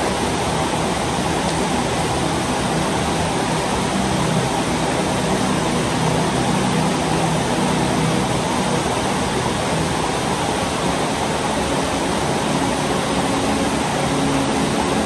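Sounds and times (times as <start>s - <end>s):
steady rain on trees and roof: 0.0s - 15.0s.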